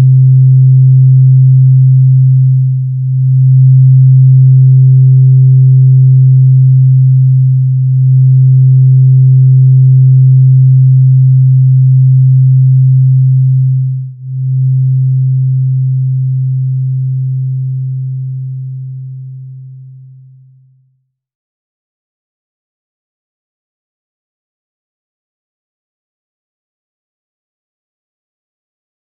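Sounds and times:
low sustained drone tone: 0.0s - 20.5s.

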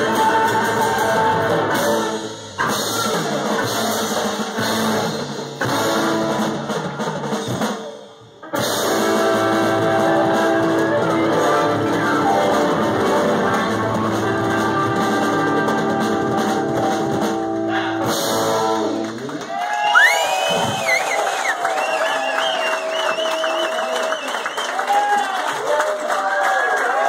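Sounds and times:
live blues-rock band playing: 0.0s - 19.4s.

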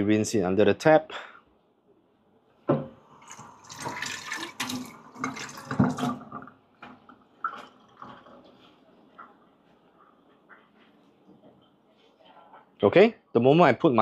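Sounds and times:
tap water running: 2.7s - 9.8s.

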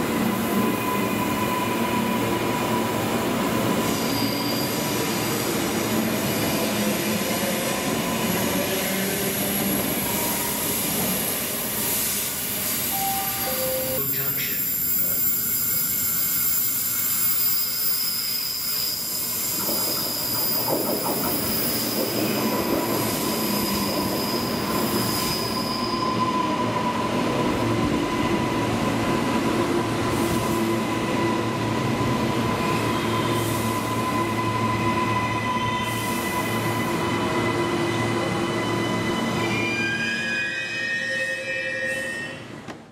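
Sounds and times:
train wheels squealing: 0.0s - 29.2s, 29.8s - 42.6s
low wheel squeal: 3.8s - 5.2s, 12.9s - 27.1s, 32.6s - 42.5s
train wheel rumble: 18.0s - 25.5s.

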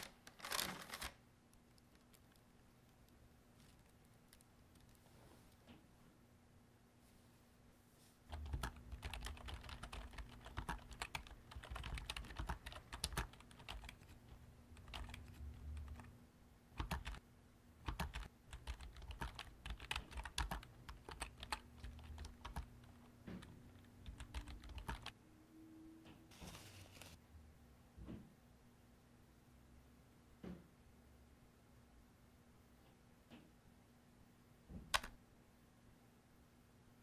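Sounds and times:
fast typing on laptop keyboard: 8.3s - 16.1s, 16.8s - 17.2s, 17.8s - 25.2s.

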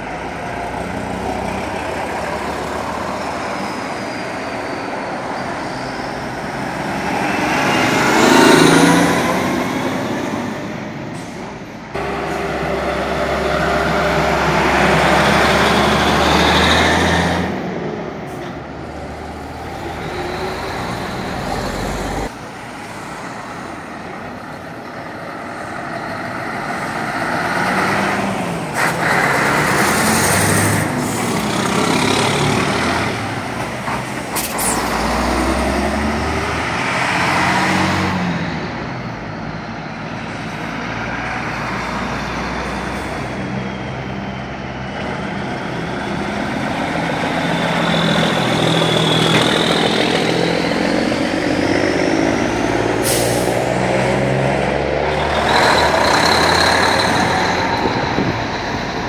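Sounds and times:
lorry engines passing: 0.0s - 59.0s
air brake hisses: 53.0s - 53.7s.

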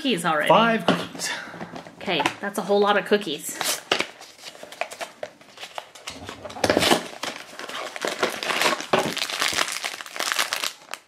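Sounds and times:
cardboard box tearing and crinkling: 6.6s - 10.7s.

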